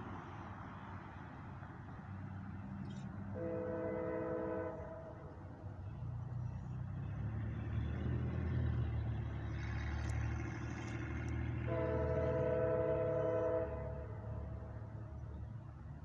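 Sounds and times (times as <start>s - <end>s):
distant locomotive rumbling: 0.0s - 16.0s
train horn chord: 3.3s - 5.4s, 11.6s - 15.0s.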